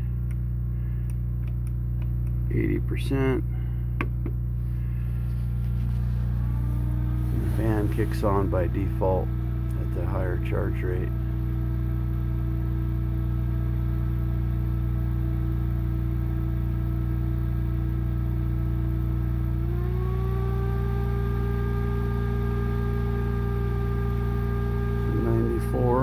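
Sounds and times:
cooling fan whirring: 0.0 - 26.0
inverter electrical hum: 0.0 - 26.0
gliding electrical tone: 4.6 - 11.2.

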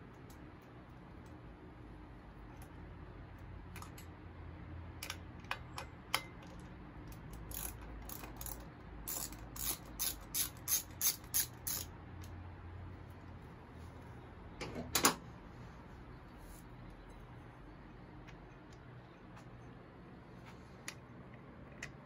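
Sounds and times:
ratchet wrench clicking: 6.1 - 12.4.

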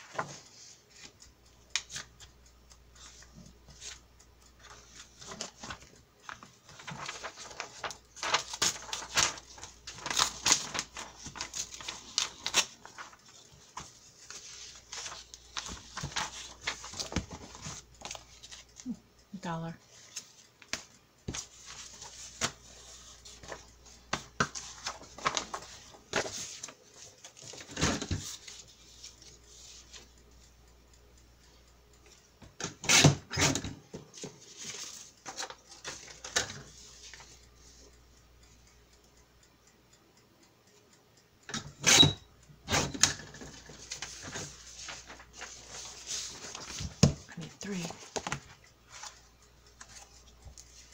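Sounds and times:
paper rustling and shuffling: 3.0 - 4.0, 4.6 - 18.8, 19.9 - 30.0, 33.9 - 37.4, 43.0 - 49.2, 49.8 - 50.9.

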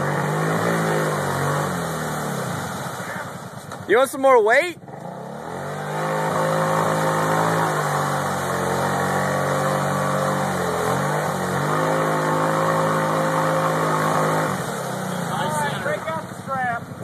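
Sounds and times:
atv engine at high revs: 0.0 - 3.9, 4.5 - 17.0
wheels spinning in mud: 4.8 - 17.0.

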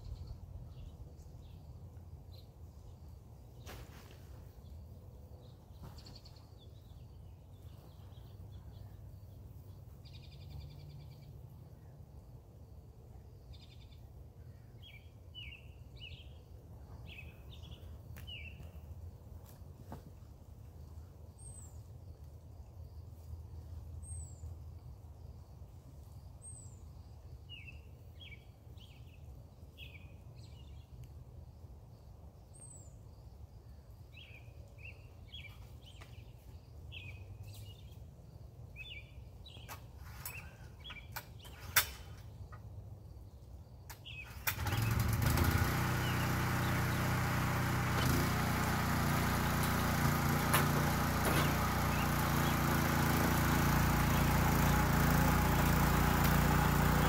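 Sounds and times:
small birds chirping: 0.0 - 57.0
rototiller engine running: 44.2 - 57.0.

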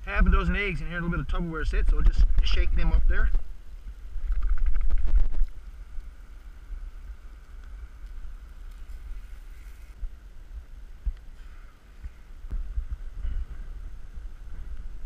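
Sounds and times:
wind rumbling on microphone: 0.0 - 15.0
camp stove burner hissing: 5.4 - 10.2.

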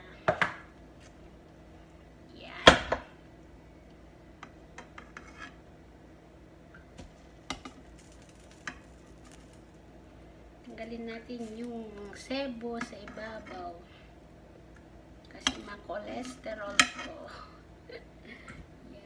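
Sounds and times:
spoon scraping metal pot: 4.9 - 5.6.

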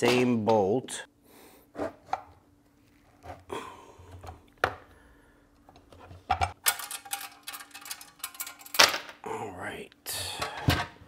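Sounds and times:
clicks and clatter: 6.3 - 9.1
metal parts knocking on workbench: 6.3 - 9.2.

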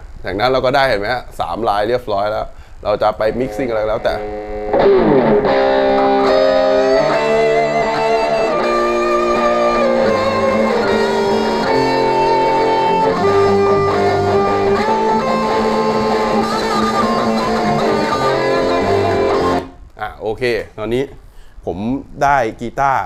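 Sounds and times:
bass guitar: 3.2 - 19.8
electric guitar: 3.2 - 19.8.

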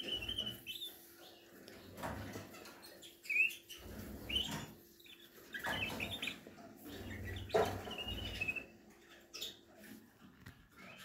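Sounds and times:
canaries chirping: 0.0 - 11.0.

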